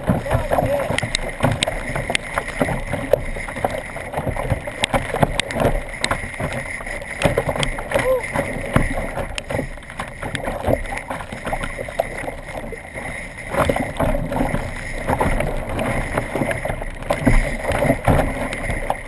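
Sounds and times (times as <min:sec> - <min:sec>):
paddle splashes: 0:00.0 - 0:19.0
water slapping against kayak hull: 0:00.0 - 0:19.0.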